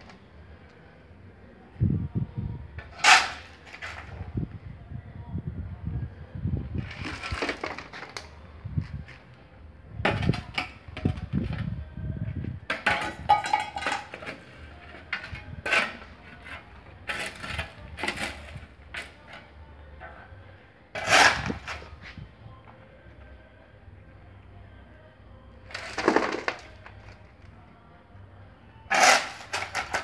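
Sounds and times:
concrete chunks clinking: 12.7s - 18.5s, 25.7s - 27.2s
hand tool scraping concrete: 15.2s - 19.2s, 21.0s - 21.9s, 28.9s - 30.0s.

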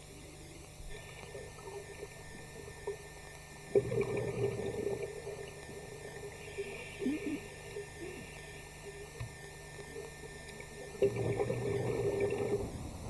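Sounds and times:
faint steady hum: 0.0s - 13.0s
bubbles gurgling underwater: 0.9s - 13.0s.

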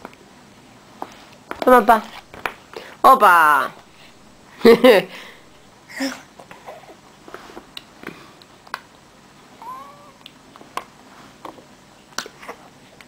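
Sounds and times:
baby whiny vocal sound: 9.6s - 10.2s
baby mouth clicks and lip smacks: 10.2s - 12.6s.

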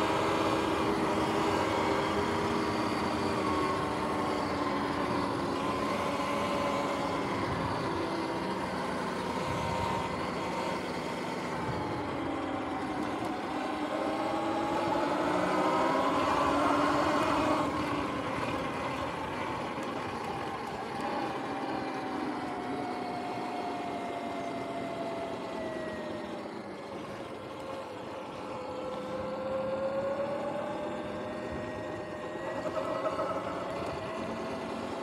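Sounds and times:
electric dirt bike motor whine: 0.0s - 35.0s.

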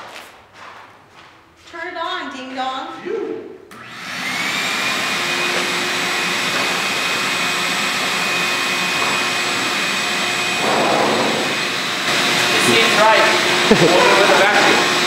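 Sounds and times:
shop vacuum motor whining: 3.7s - 15.0s.

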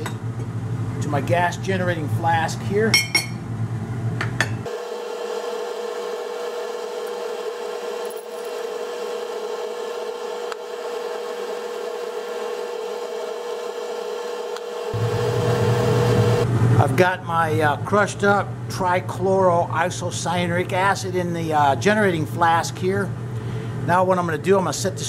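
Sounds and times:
steady hum: 0.0s - 7.9s, 14.6s - 25.0s.

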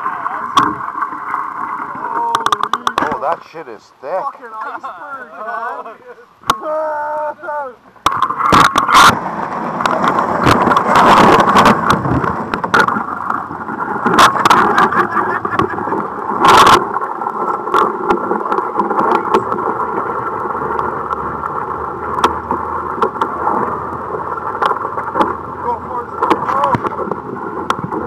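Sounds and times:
boat motor running: 8.0s - 28.0s
ice crunching against hull: 8.0s - 28.0s.

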